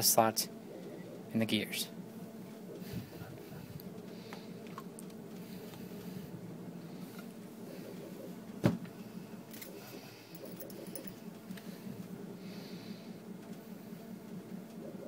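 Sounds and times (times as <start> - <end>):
steady low hum: 0.0 - 15.0
metal and plastic parts clinking: 10.4 - 11.2.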